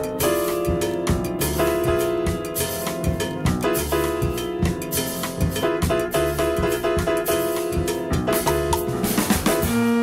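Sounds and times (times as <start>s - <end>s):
drum kit beat: 0.0s - 10.0s.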